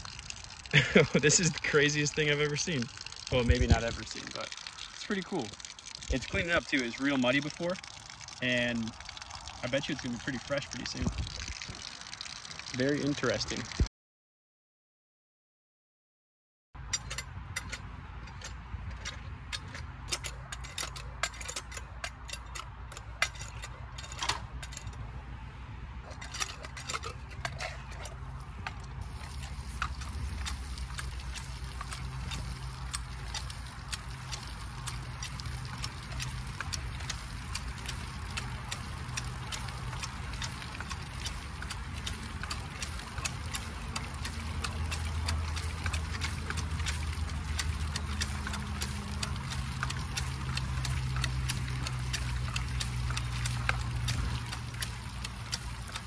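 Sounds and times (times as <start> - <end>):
hand pump clanking: 0.0 - 12.0, 16.8 - 25.0, 26.0 - 56.0
water gushing and splashing: 0.0 - 13.9, 26.1 - 56.0.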